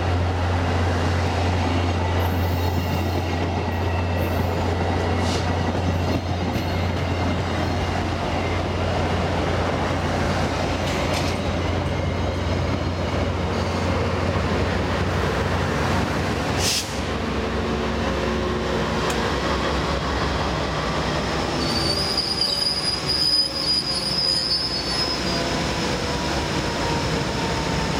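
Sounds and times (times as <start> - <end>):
train wheels rumbling on rails: 0.0 - 27.9
brake and wheel squeal: 21.5 - 25.4.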